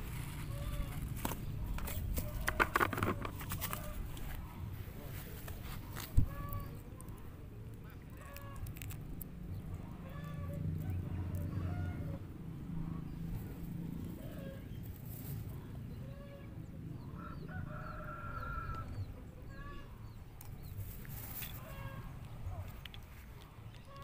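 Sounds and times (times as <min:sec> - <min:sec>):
fowl calling: 0:10.0 - 0:10.6.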